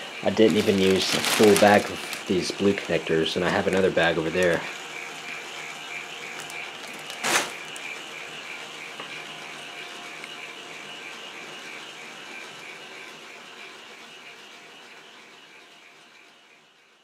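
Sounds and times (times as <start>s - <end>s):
light regular pulsing: 0.0s - 17.0s
plastic bag crinkling and rattling: 0.2s - 4.6s, 6.3s - 8.0s.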